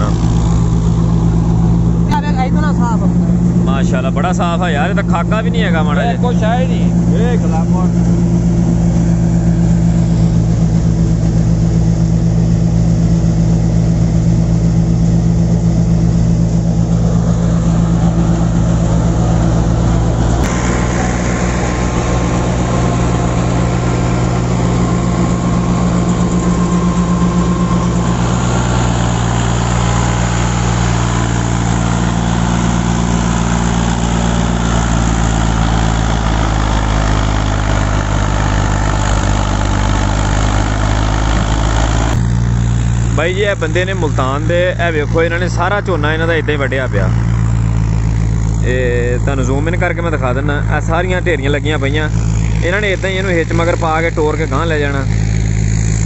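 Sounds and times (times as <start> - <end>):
tractor diesel engine running: 0.0 - 56.0
thresher machinery rushing: 2.8 - 47.2.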